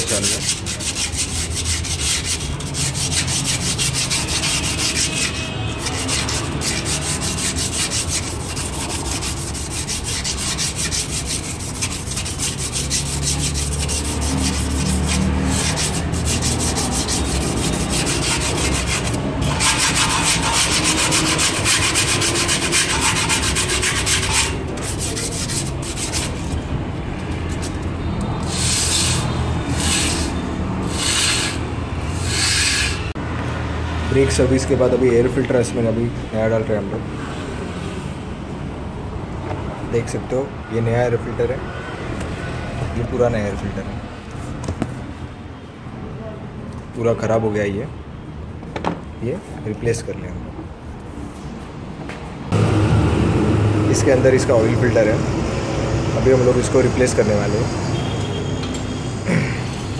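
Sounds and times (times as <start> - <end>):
sandpaper scraping brake disc: 0.0 - 33.2.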